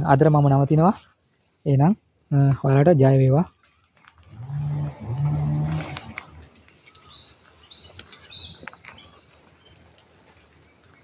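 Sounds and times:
cow mooing: 0:04.3 - 0:06.5.

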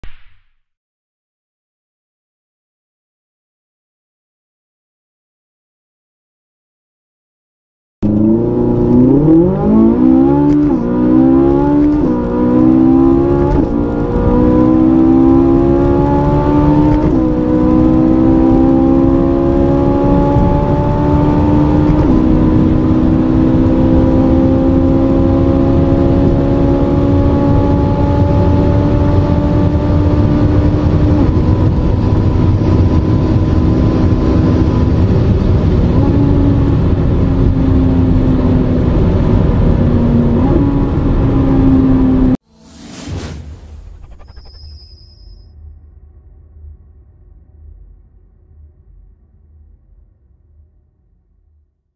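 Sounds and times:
car engine accelerating: 0:08.0 - 0:44.5.

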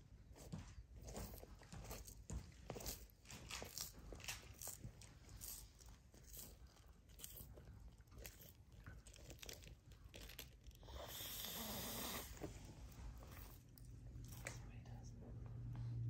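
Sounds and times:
tortoise crunching food: 0:00.2 - 0:14.6.

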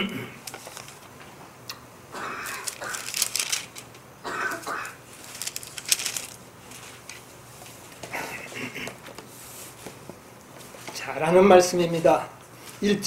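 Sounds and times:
thin paper pages rustling: 0:00.4 - 0:01.1, 0:02.6 - 0:04.0, 0:05.1 - 0:08.0.

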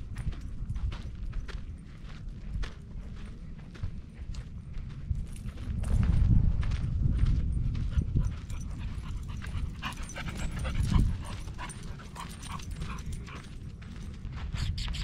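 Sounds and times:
low rumble: 0:00.0 - 0:14.6
footsteps scuffing on dirt: 0:00.0 - 0:15.0
dog panting: 0:07.8 - 0:14.2.

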